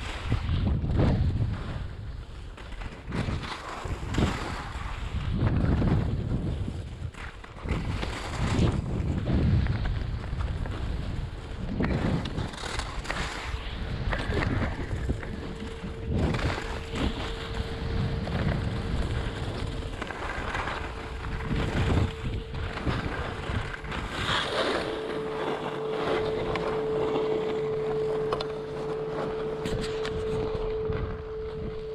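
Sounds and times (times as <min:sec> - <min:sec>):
skis scraping over snow: 0:00.0 - 0:31.9
wind rushing over microphone: 0:00.0 - 0:31.9
steady tone: 0:13.0 - 0:31.9.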